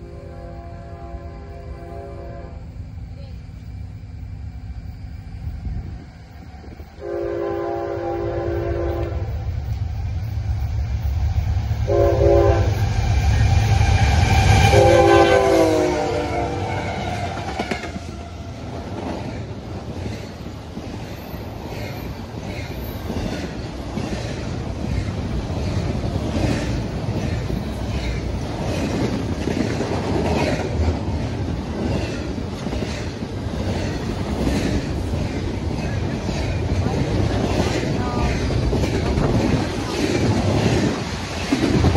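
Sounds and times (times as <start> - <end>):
locomotive air horn blasts: 0.0 - 2.7, 7.0 - 9.4, 11.9 - 12.8, 14.6 - 17.4
locomotive engine rumble: 1.4 - 41.9
train wheel clatter: 16.6 - 41.9.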